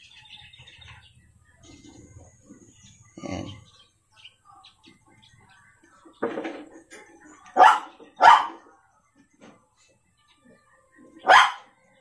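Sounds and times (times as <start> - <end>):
dog barking: 7.6 - 8.7, 11.2 - 11.8.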